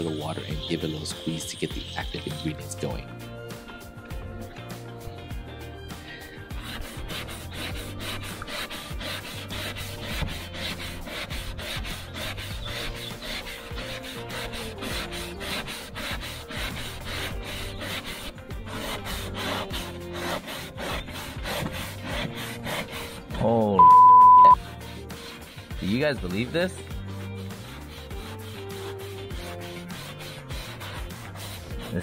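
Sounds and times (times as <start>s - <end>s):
foam pad scrubbing plastic: 6.6s - 23.2s, 27.2s - 32.0s.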